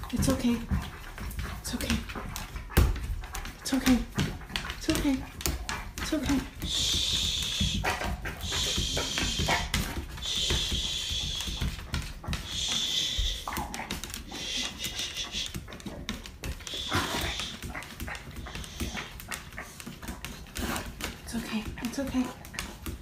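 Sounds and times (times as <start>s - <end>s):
paws knocking on tile floor: 0.0s - 23.0s
dog hissing breaths: 6.4s - 21.0s.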